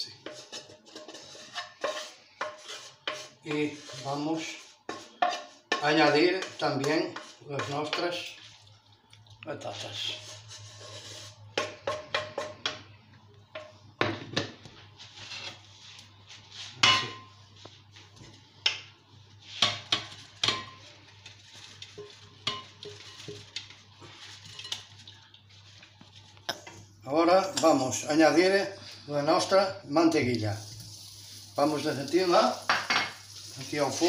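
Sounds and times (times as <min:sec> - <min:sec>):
wooden spatula scraping a frying pan: 0:00.1 - 0:08.7, 0:09.7 - 0:12.7, 0:15.0 - 0:17.8, 0:19.4 - 0:25.0.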